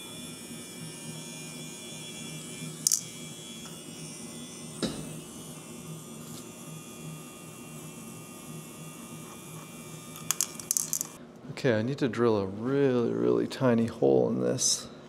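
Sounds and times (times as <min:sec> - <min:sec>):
small electric motor humming: 0:00.0 - 0:11.2.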